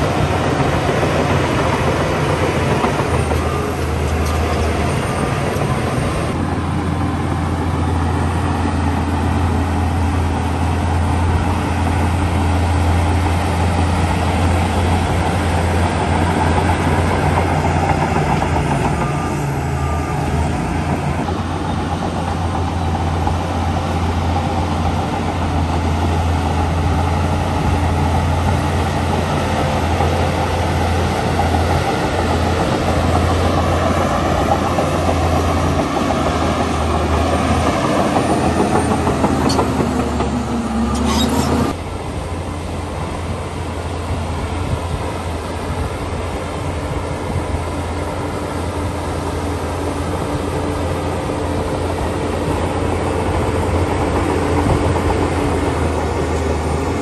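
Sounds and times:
heavy diesel engine droning: 0:00.0 - 0:57.0
mechanical noise: 0:40.9 - 0:41.8.

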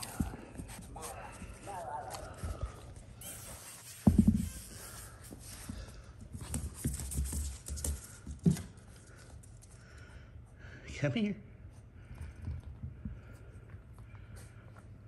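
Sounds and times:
puppy paws scrabbling on wooden floor: 0:00.0 - 0:09.8.

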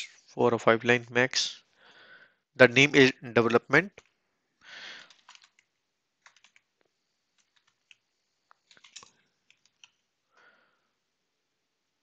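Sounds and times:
faint keyboard typing: 0:04.8 - 0:10.2.

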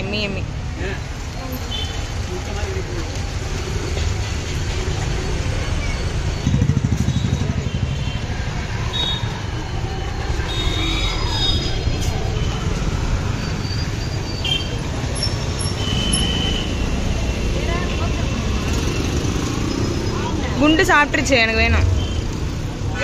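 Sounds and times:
engine and road rumble: 0:00.0 - 0:23.0
passing vehicle engine: 0:03.6 - 0:08.8.

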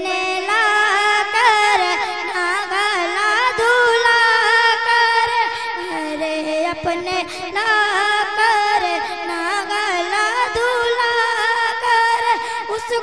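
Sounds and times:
high voice singing: 0:00.0 - 0:13.0.

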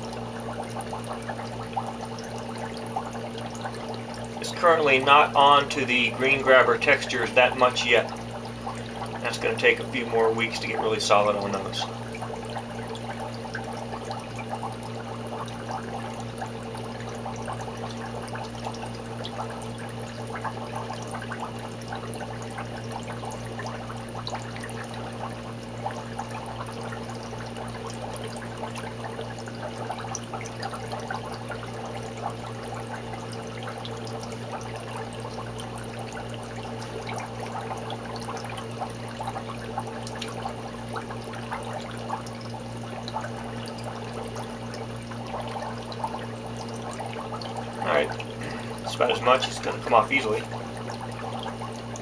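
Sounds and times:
steady low hum: 0:00.0 - 0:52.0
water splashing and dripping: 0:00.0 - 0:52.0.

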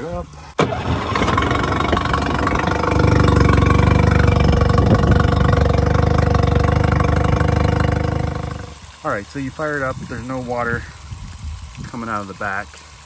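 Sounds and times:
outboard motor running: 0:00.6 - 0:08.8.

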